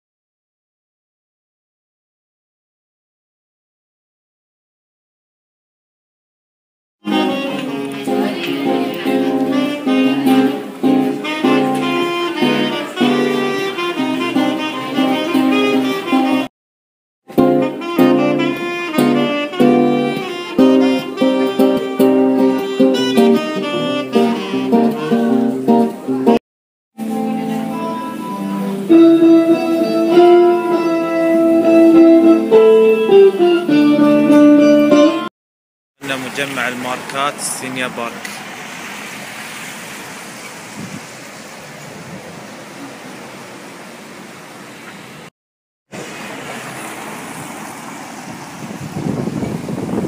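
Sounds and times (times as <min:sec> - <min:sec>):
saxophone melody: 0:07.0 - 0:16.5, 0:17.3 - 0:26.4, 0:27.0 - 0:35.3
plucked acoustic guitar: 0:07.1 - 0:16.4, 0:17.3 - 0:26.4, 0:27.0 - 0:35.3
rain falling on wet street: 0:46.0 - 0:48.9.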